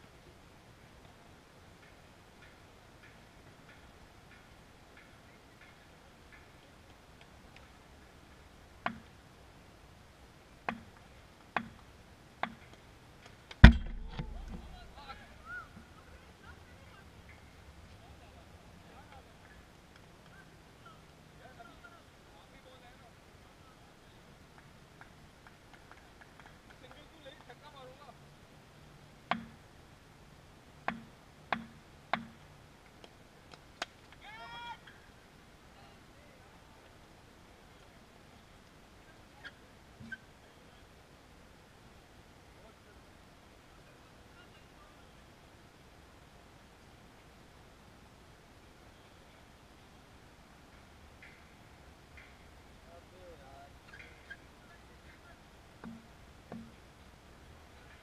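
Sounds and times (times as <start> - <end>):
cricket bat tapping hard court: 29.3 - 29.6, 30.9 - 32.4
faint clicks: 50.7 - 52.5.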